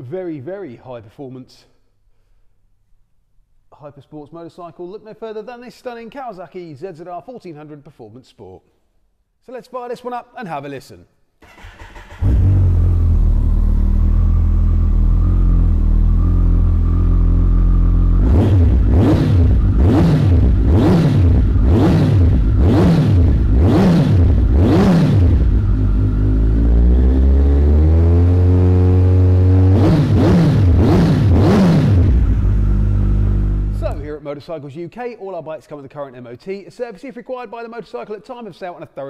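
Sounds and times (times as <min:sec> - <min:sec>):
motorcycle engine revving: 0:11.4 - 0:34.1.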